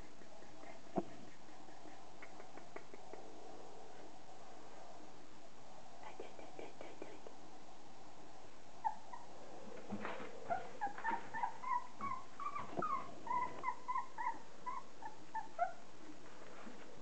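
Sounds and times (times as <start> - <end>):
puppies whining: 10.4 - 15.9.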